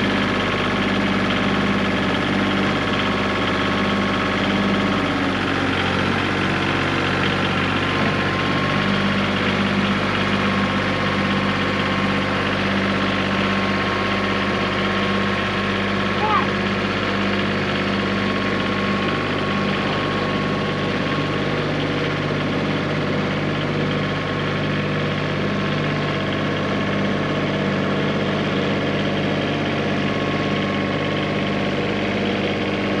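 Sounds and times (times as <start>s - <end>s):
tractor engine running: 0.0s - 33.0s.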